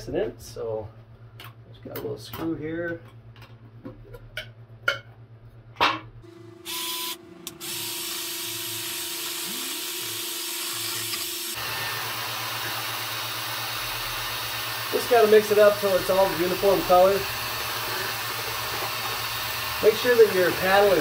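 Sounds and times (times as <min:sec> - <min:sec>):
power drill mixing paint: 0:06.6 - 0:21.0.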